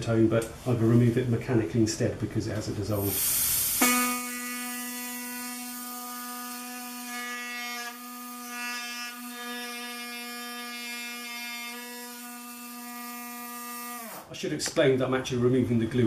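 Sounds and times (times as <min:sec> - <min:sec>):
air scribe buzzing: 0:03.0 - 0:14.3.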